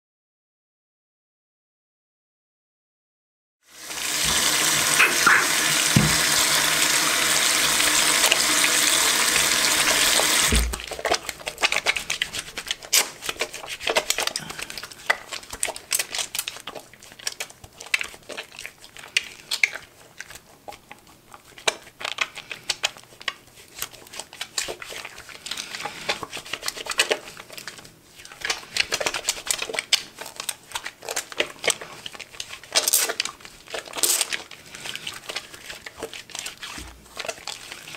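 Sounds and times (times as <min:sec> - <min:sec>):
tap water running into sink: 0:03.8 - 0:10.8
soapy hands rubbing together: 0:03.9 - 0:37.9.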